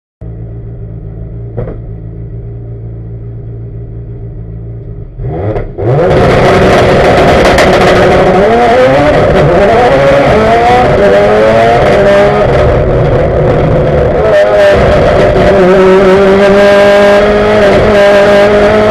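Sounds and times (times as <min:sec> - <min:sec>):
race car engine revving: 0:05.1 - 0:18.9.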